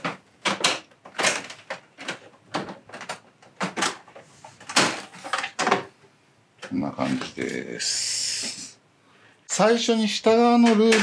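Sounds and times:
plastic clicks and knocks: 0.0s - 5.9s.

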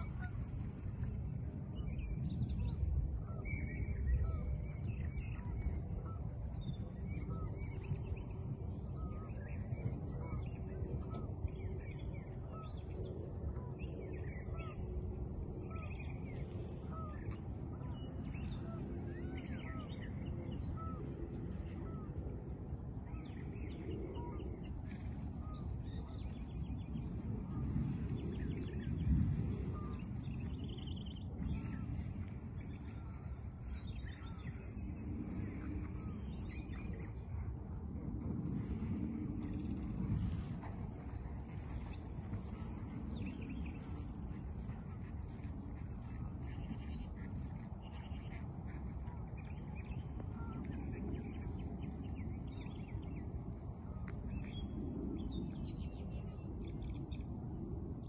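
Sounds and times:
steady low rumble: 0.0s - 58.0s
birds chirping: 29.8s - 37.6s, 39.1s - 57.3s.

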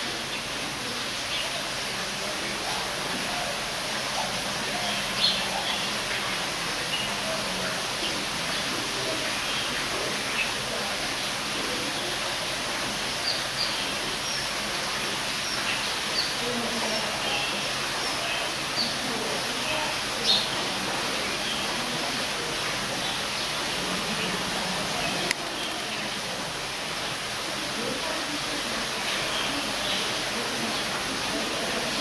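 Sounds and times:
steady background hiss: 0.0s - 32.0s
small birds chirping: 2.5s - 26.8s.

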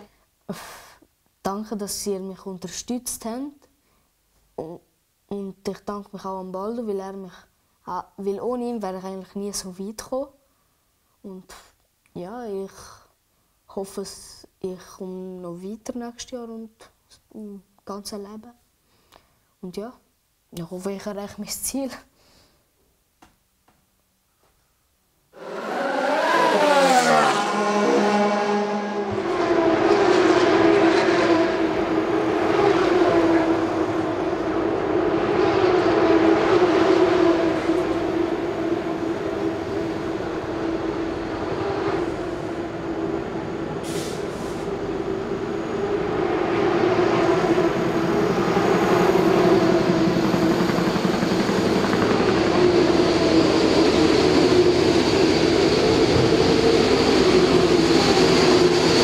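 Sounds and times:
downward gliding pitched sound: 25.4s - 43.8s, 44.6s - 59.0s
steady mechanical drone: 25.4s - 43.8s, 44.6s - 59.0s.

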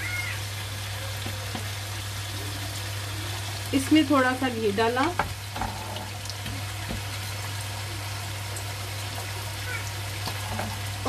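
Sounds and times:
ghee hissing in a pan: 0.0s - 11.0s.

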